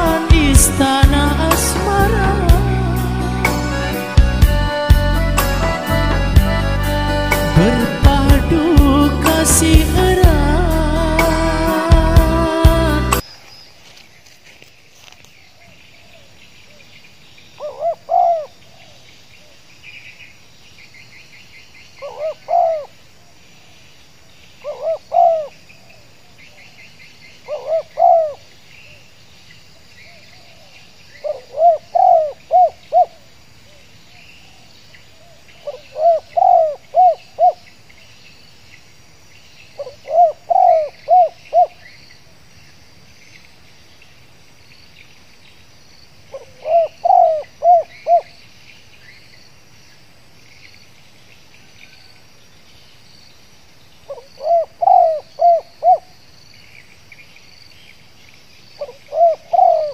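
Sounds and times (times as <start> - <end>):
faint insect chorus: 0.0 - 59.9
dove cooing: 17.6 - 19.0, 22.0 - 22.9, 24.6 - 25.5, 27.5 - 28.4, 31.2 - 33.2, 35.6 - 37.6, 39.8 - 41.8, 46.3 - 48.4, 54.1 - 56.1, 58.8 - 59.9.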